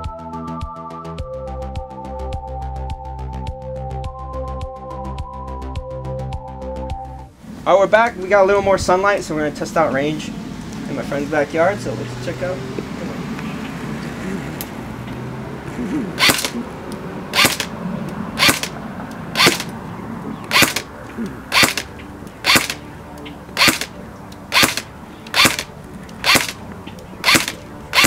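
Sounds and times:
airsoft gun firing single shots: 16.2 - 16.6, 17.4 - 17.7, 18.4 - 18.8, 19.4 - 19.7, 20.5 - 20.9, 21.5 - 22.8, 23.6 - 23.9, 24.5 - 26.6, 27.2 - 28.0.

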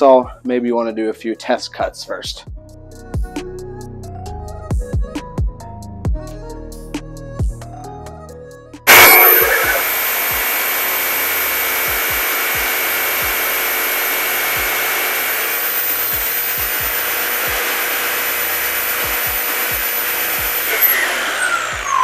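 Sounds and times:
jigsaw cutting plywood: 8.9 - 22.0.

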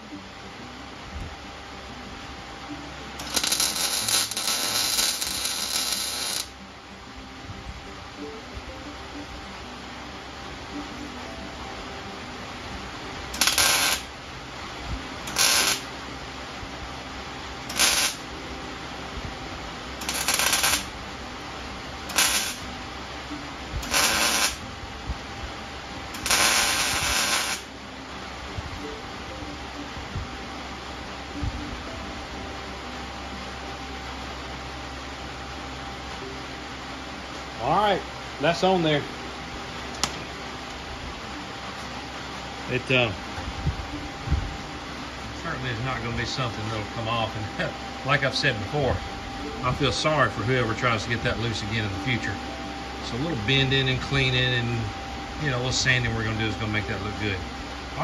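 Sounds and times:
welder arc crackling: 3.0 - 6.6, 13.2 - 18.4, 19.2 - 27.8, 43.8 - 58.0
mig welder welding bursts: 3.2 - 6.6, 13.3 - 14.2, 15.2 - 15.9, 17.6 - 18.4, 20.0 - 21.0, 22.0 - 22.8, 23.8 - 24.8, 26.1 - 27.7.

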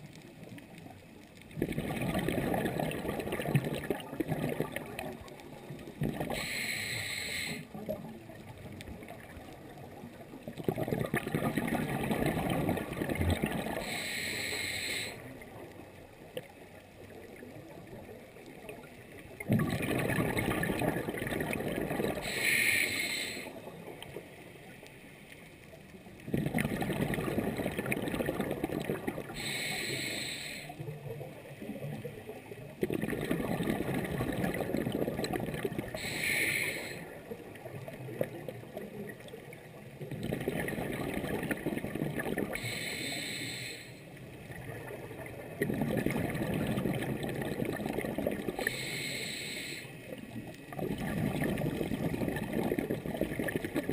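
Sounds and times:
gurgling exhaled bubbles: 0.6 - 6.6, 7.6 - 14.2, 15.0 - 24.2, 26.1 - 29.8, 30.7 - 42.8, 44.2 - 48.9, 50.0 - 53.9
regulator inhalation hiss: 6.3 - 7.7, 13.8 - 15.3, 22.2 - 23.6, 29.3 - 30.8, 36.0 - 37.1, 42.6 - 44.1, 48.6 - 50.0.

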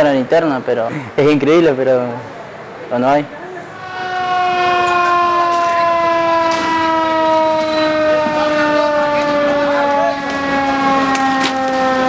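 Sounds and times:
fire truck siren: 3.6 - 12.0.

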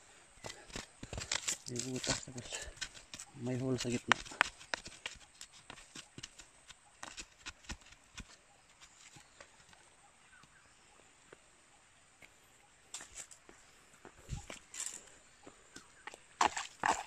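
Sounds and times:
dry leaves and twigs crackling: 0.1 - 11.5, 12.2 - 17.0.

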